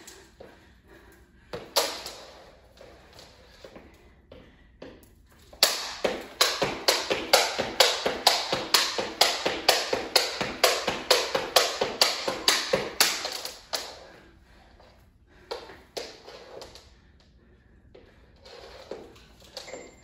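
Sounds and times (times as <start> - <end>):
skipping rope slapping floor: 0.0 - 14.2, 15.4 - 16.9.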